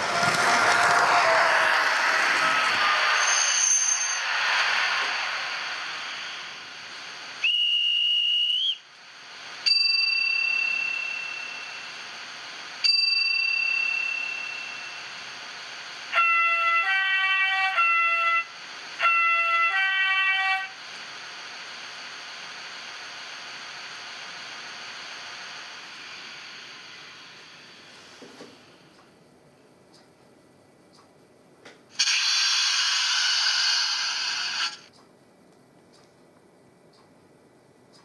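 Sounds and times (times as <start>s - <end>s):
hiss: 0.0s - 29.0s, 31.9s - 34.9s
short high whistle tone: 2.8s - 4.3s, 7.4s - 8.8s
two-note train horn: 16.1s - 20.8s.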